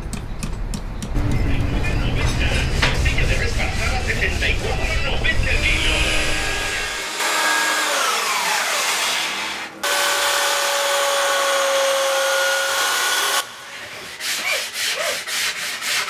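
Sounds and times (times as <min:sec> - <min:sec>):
belt sander running: 0:02.6 - 0:13.4
hand sanding strokes: 0:13.7 - 0:16.0.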